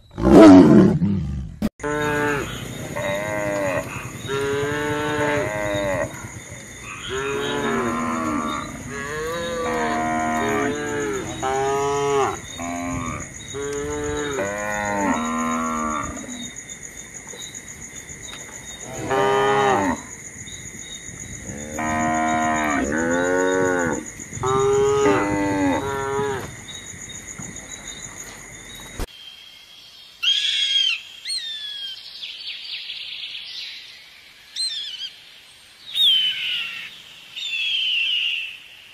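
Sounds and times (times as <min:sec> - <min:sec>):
young cattle mooing: 0:01.8 - 0:06.2, 0:07.0 - 0:16.3.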